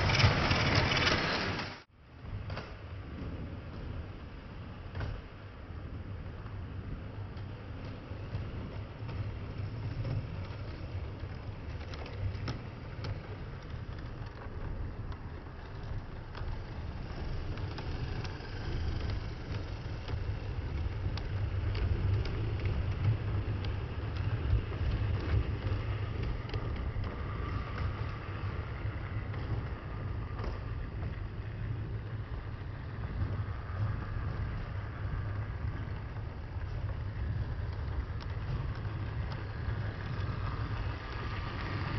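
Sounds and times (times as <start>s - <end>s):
wheels clicking over rail joints: 0.0s - 41.9s
model train motor hum: 9.1s - 41.9s.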